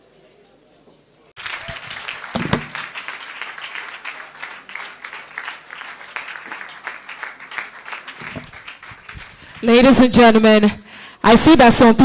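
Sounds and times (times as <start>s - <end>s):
crowd clapping: 1.4s - 10.2s
single thump: 2.4s - 2.8s.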